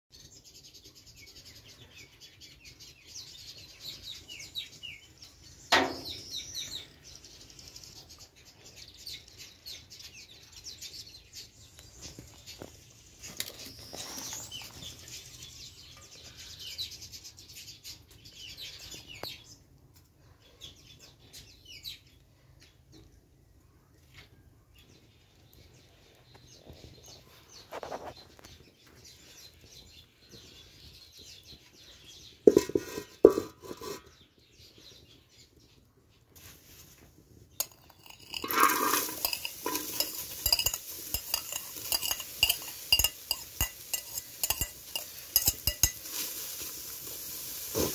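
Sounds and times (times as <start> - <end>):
cabbage rustling in metal bowl: 32.5 - 34.0, 36.4 - 47.9
metal pot and plate clattering: 32.5 - 34.1, 37.6 - 46.3.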